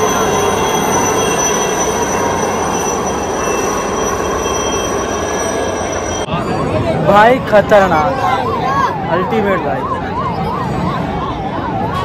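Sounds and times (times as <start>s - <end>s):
high whine: 0.0s - 7.2s
helicopters flying overhead: 0.0s - 12.0s.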